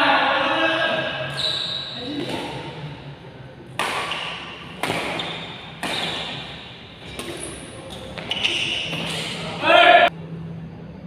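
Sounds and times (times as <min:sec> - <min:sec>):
racket hitting shuttlecock: 0:03.7 - 0:09.4.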